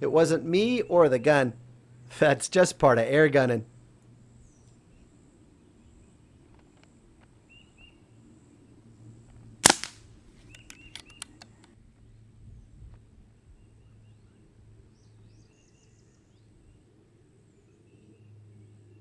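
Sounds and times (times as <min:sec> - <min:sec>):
air pistol shot: 0:09.6 - 0:10.1.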